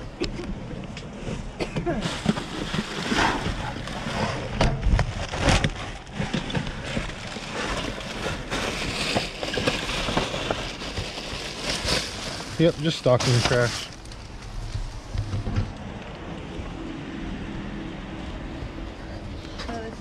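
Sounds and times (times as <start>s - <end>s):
plastic bags rustling: 1.9s - 16.0s.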